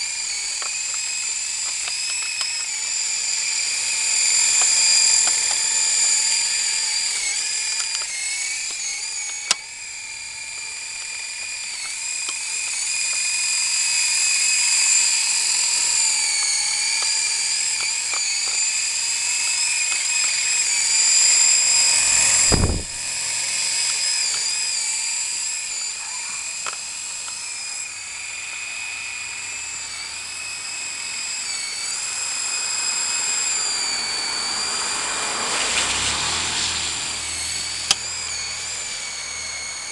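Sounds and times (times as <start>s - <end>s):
toy helicopter rotors whining: 0.0s - 39.9s
short low thump: 22.5s - 23.0s.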